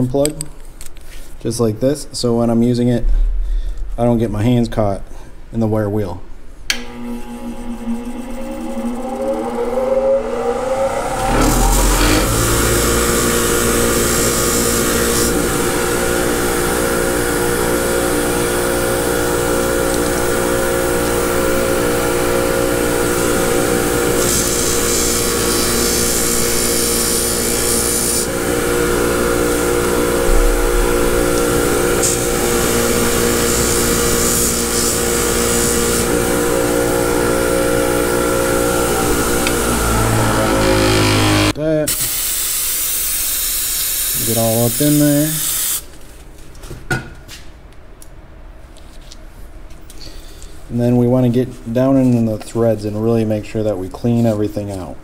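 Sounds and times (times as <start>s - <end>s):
wire wheel hissing on metal: 7.8s - 19.0s, 21.8s - 45.8s
bench grinder motor running: 10.6s - 41.6s.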